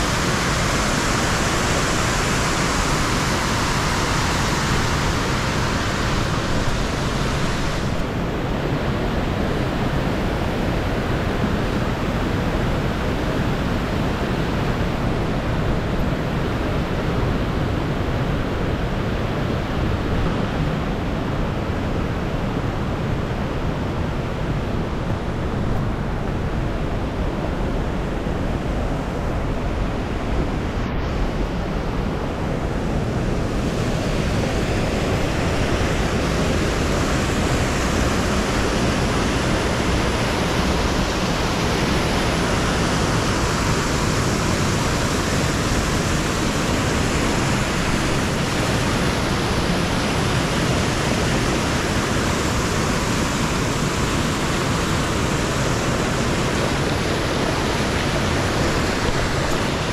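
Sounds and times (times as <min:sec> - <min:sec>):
waterfall rushing: 0:00.0 - 0:08.5, 0:30.0 - 0:59.9.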